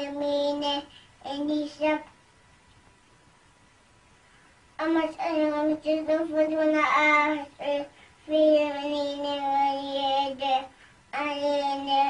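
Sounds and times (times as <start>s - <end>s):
child chanting a prayer: 0.0s - 2.2s, 4.8s - 12.0s.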